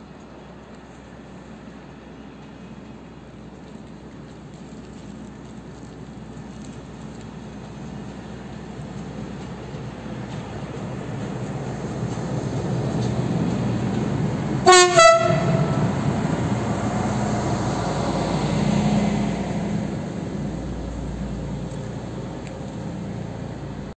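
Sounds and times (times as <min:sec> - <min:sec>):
engine hum: 0:00.0 - 0:23.9
train rumble: 0:00.0 - 0:23.9
train horn blasts: 0:14.6 - 0:16.0.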